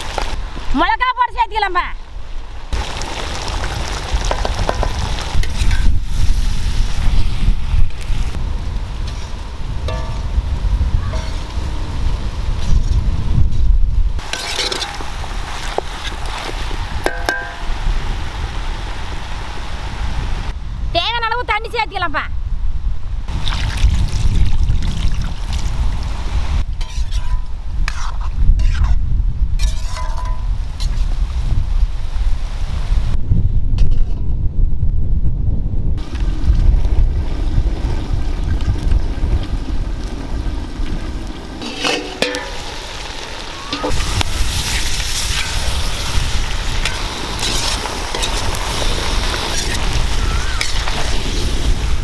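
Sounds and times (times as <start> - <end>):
wind rumbling on microphone: 0.0 - 52.0
clicks and scrapes: 26.8 - 29.0, 29.6 - 31.1
steady hiss: 40.2 - 52.0.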